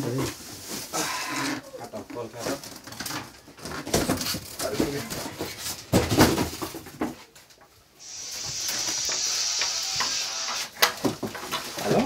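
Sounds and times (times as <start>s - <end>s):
plastic wrapping rustling: 0.0s - 6.8s
steady hiss: 7.9s - 10.8s.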